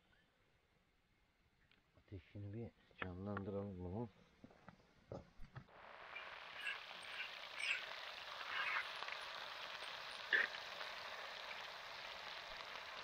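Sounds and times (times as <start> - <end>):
fire crackling pops: 5.4 - 13.0
campfire hissing: 5.7 - 13.0.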